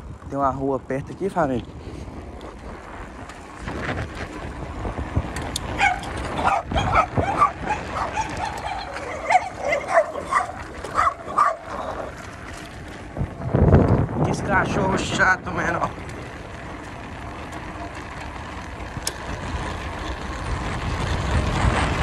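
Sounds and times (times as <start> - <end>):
dog barking: 5.8 - 11.8.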